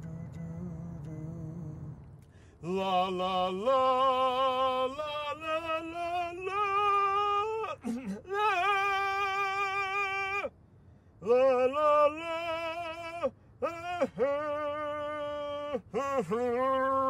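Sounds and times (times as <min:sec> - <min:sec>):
person singing with vibrato: 0:02.6 - 0:10.5, 0:11.2 - 0:17.0.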